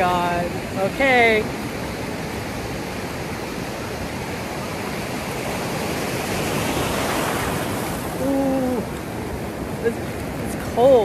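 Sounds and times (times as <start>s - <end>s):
ocean surf washing and fizzing: 0.0s - 11.0s.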